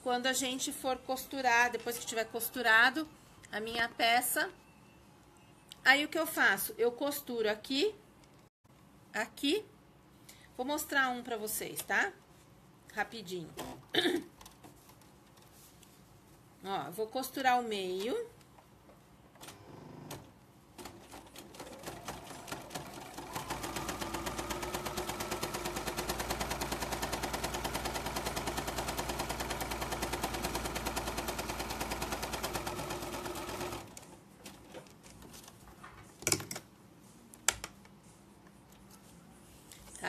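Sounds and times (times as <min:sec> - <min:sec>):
sewing machine stitching: 0:19.4 - 0:34.0.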